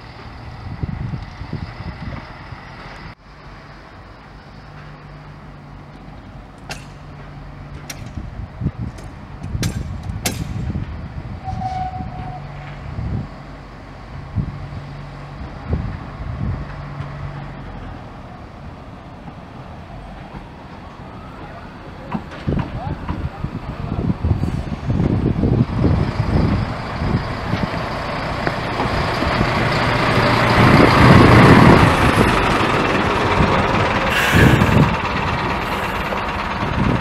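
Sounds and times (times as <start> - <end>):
diesel locomotive engine running: 0.0 - 37.0
sharp clicks and knocks: 6.6 - 8.2, 8.9 - 10.7.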